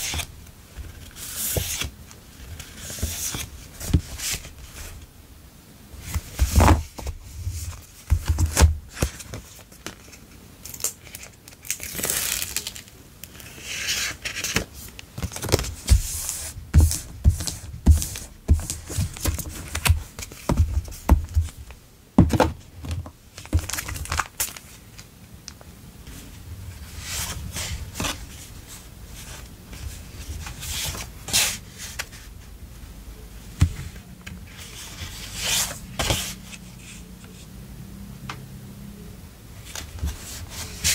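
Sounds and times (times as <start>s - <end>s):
paper sheets rustling: 0.0s - 4.9s, 11.0s - 21.6s, 39.6s - 40.9s.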